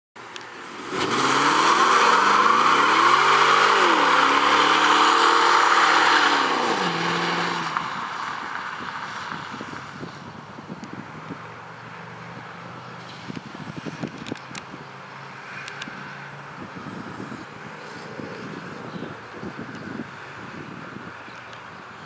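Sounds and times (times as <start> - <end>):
car engine revving: 0.7 - 8.1
tyres squealing on asphalt: 0.8 - 9.3.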